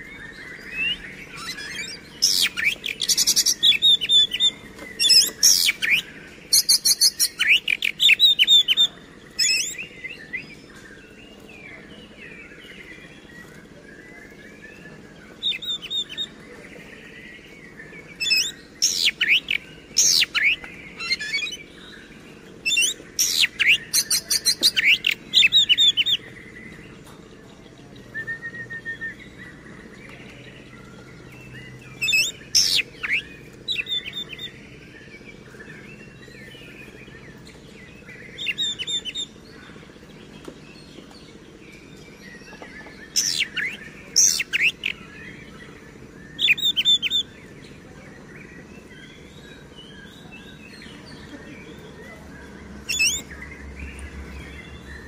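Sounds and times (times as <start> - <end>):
songbird whistling and trilling: 0.0 - 10.6, 14.8 - 16.3, 18.1 - 26.2, 28.1 - 29.6, 31.5 - 34.6, 38.1 - 39.4, 42.2 - 47.3, 52.8 - 55.0.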